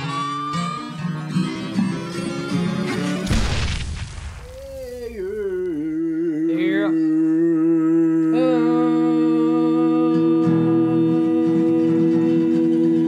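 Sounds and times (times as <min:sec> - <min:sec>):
voices humming in harmony: 0:04.8 - 0:13.0.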